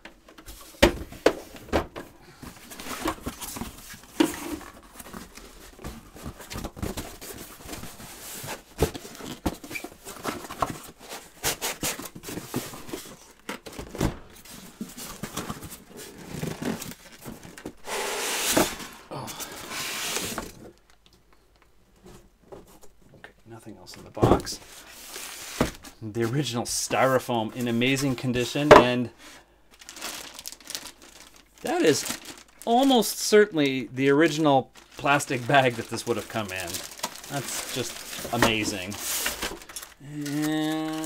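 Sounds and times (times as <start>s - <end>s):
styrofoam tray rustling: 0.4s - 20.8s, 29.8s - 33.4s, 34.4s - 41.0s
cardboard knocks and scrapes: 25.2s - 25.9s.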